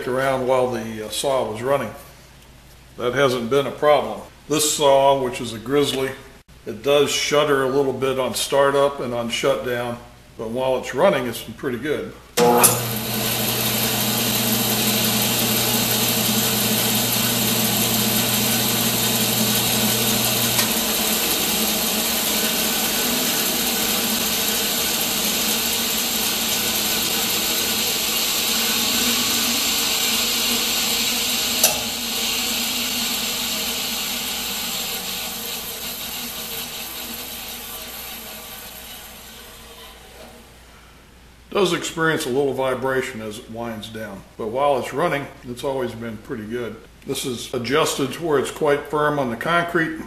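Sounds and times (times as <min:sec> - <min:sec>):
band saw running: 0:12.4 - 0:40.3
sharp click: 0:31.6 - 0:32.0.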